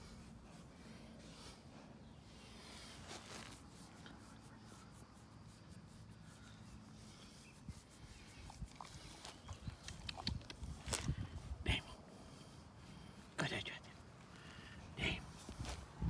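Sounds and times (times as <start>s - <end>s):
hand rubbing dog's coat: 0.0s - 11.0s.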